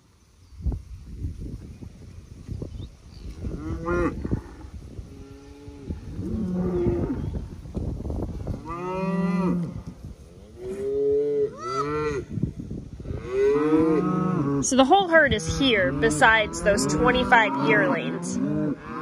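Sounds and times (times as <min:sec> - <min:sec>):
cattle mooing: 0:05.3 - 0:07.3, 0:13.1 - 0:19.0.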